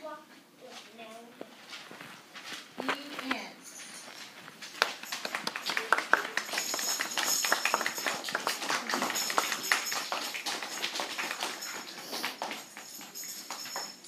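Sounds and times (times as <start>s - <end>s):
children clapping: 4.8s - 14.0s.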